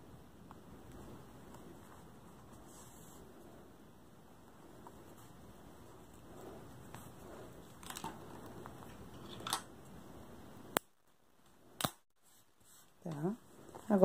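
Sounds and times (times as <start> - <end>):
rustling of crochet handling: 0.4 - 10.1, 12.2 - 14.0.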